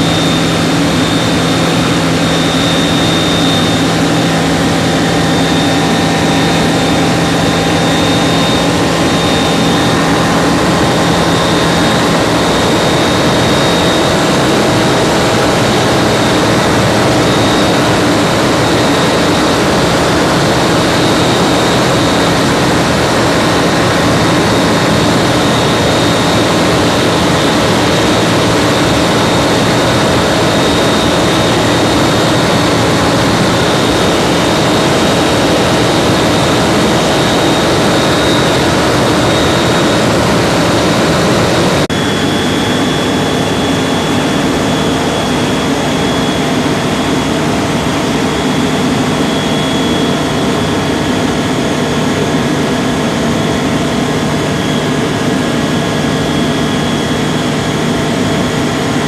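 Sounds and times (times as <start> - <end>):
aircraft engine and propeller droning: 0.0 - 59.0.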